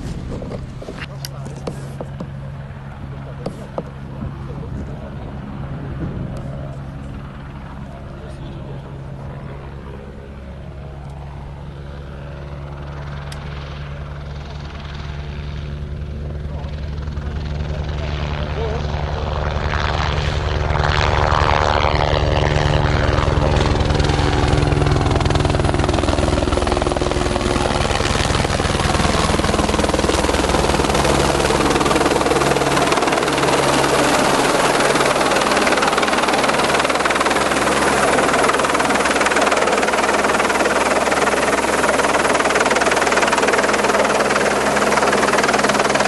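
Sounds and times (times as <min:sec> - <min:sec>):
helicopter rotor beat: 0:00.0 - 0:46.0.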